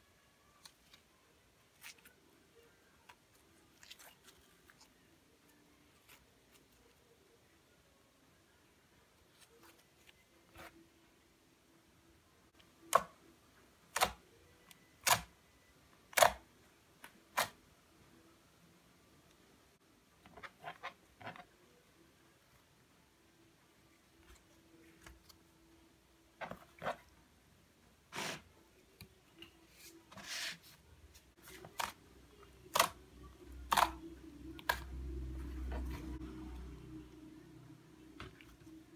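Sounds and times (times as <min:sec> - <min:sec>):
low steady hum: 0:30.8 - 0:38.9.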